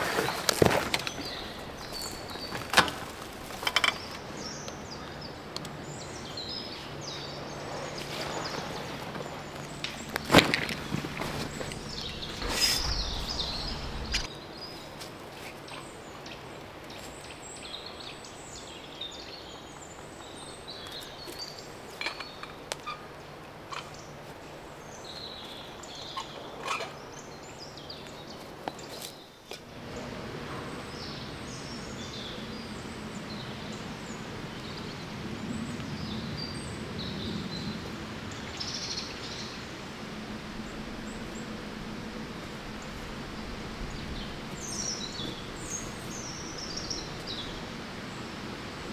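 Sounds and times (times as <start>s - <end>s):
birds singing and chirping: 0.0s - 14.8s, 42.7s - 48.3s.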